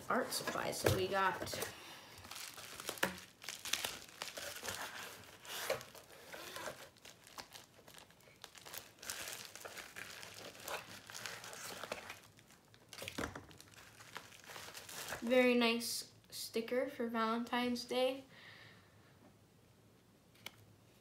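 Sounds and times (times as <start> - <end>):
bubble wrap crinkling: 0.2 - 15.3.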